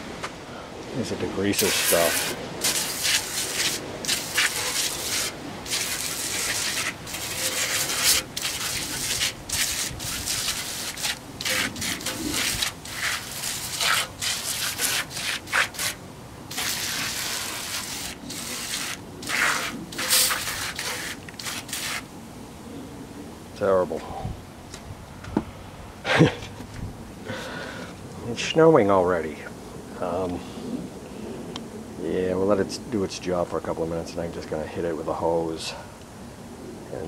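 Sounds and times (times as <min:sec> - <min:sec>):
aerosol can spraying hissing bursts: 0:01.6 - 0:22.0.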